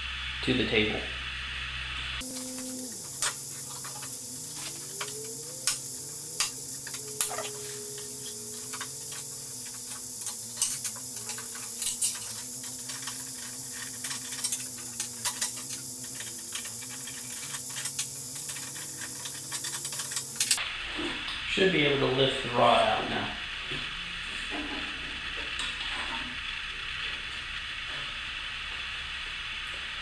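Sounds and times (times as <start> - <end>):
faint hum: 0.0 - 30.0
steady hiss: 2.2 - 20.9.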